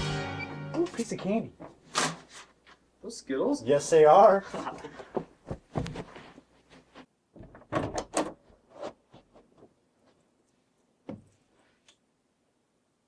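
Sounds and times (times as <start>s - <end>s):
door opening: 7.4s - 8.4s
knocks and rattles: 7.4s - 8.4s.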